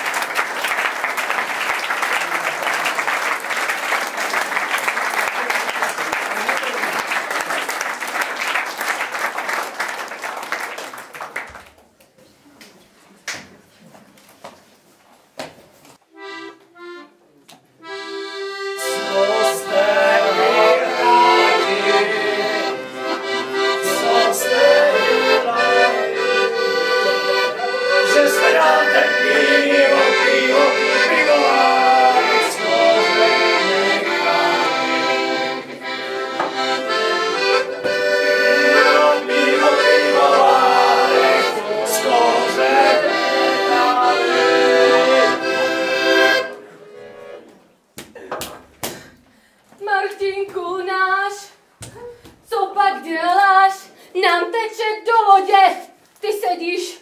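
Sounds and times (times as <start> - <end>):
piano accordion playing: 16.1 - 47.5.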